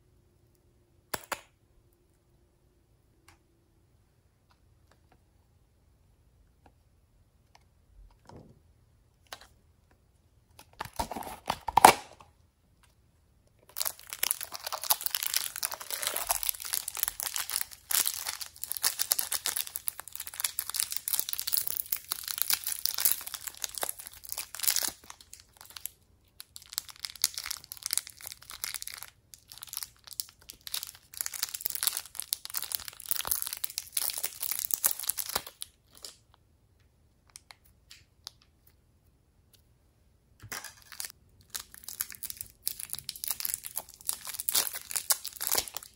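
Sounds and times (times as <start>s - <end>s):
plastic wrappers crinkling and tearing: 13.7s - 36.2s, 40.6s - 45.9s.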